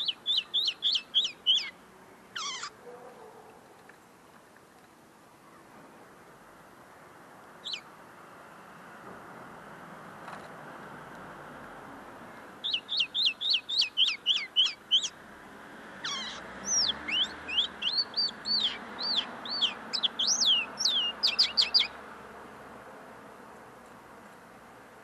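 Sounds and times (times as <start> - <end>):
linnet singing: 0.0 - 2.7, 7.6 - 7.9, 12.6 - 15.2, 16.0 - 22.0.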